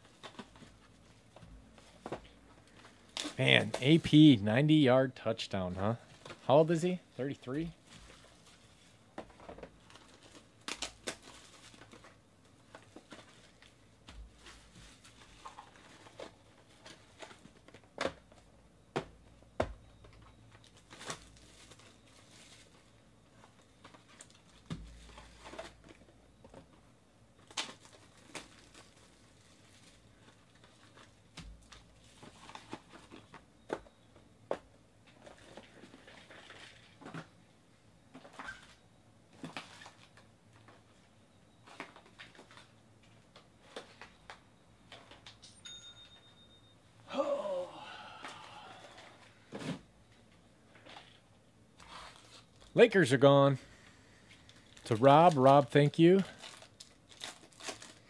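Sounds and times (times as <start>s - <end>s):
plastic and foil packs crinkling: 7.8s - 18.0s, 20.6s - 26.2s, 27.4s - 33.4s, 35.0s - 37.2s, 39.4s - 40.9s, 41.6s - 44.4s, 51.8s - 52.8s, 53.6s - 58.0s.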